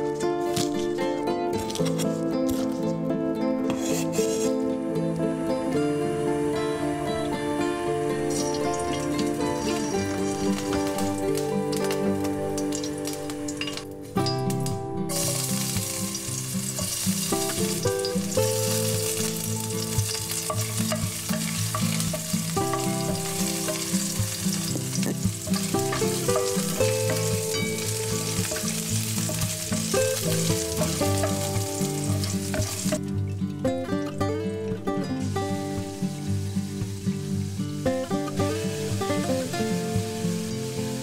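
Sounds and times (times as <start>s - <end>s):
background music: 0.0s - 41.0s
onions sizzling in hot oil: 7.3s - 33.2s, 35.2s - 41.0s.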